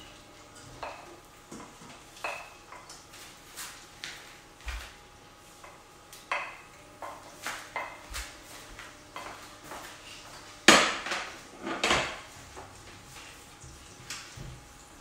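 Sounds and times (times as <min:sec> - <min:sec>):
kitchen utensils clinking: 0:00.0 - 0:03.1, 0:09.1 - 0:12.3.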